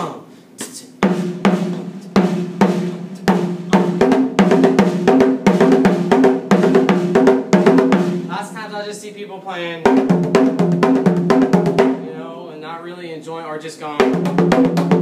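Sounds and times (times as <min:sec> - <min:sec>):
high-pitched hand drum strokes: 0:00.6 - 0:08.6.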